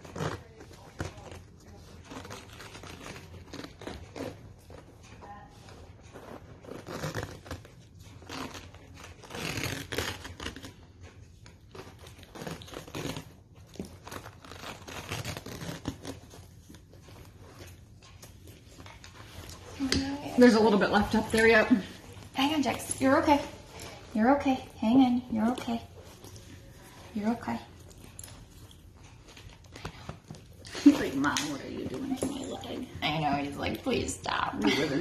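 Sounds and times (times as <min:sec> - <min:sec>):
bandage crackling and tearing: 0:00.0 - 0:04.8, 0:06.1 - 0:20.0.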